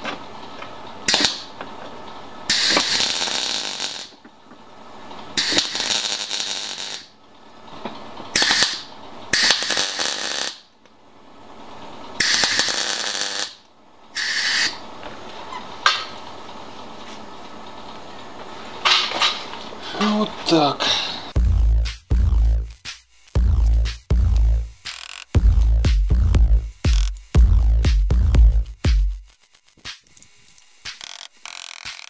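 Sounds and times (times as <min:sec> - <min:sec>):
crackling arc welding bursts: 0:01.1 - 0:01.6, 0:02.5 - 0:04.2, 0:05.3 - 0:07.2, 0:08.3 - 0:10.8, 0:12.2 - 0:14.9, 0:21.3 - 0:32.0.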